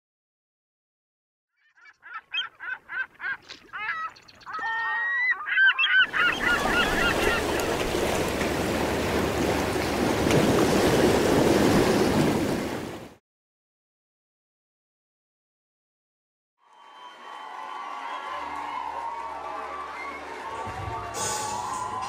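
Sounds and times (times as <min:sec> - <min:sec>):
gulls calling: 0:01.6 - 0:12.6
sea waves washing: 0:06.0 - 0:13.2.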